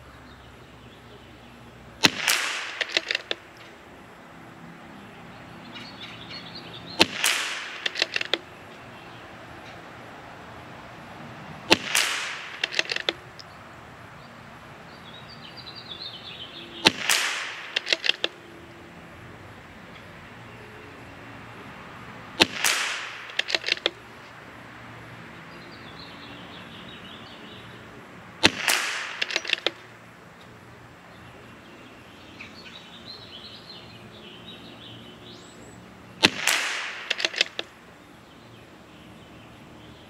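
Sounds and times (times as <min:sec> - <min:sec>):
rifle shots: 0:02.0 - 0:03.5, 0:07.0 - 0:08.4, 0:11.7 - 0:13.2, 0:16.8 - 0:18.4, 0:22.4 - 0:24.0, 0:28.4 - 0:29.9, 0:36.2 - 0:37.7
rifle bolt clicking: 0:02.0 - 0:03.7, 0:07.0 - 0:08.4, 0:11.7 - 0:13.5, 0:16.8 - 0:18.4, 0:22.4 - 0:24.0, 0:28.4 - 0:29.8, 0:36.2 - 0:37.7.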